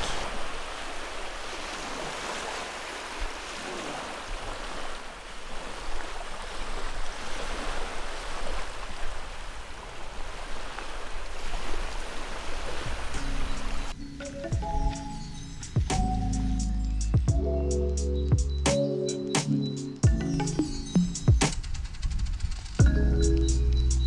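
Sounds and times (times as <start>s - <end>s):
small waves washing onto shore: 0.0s - 13.9s.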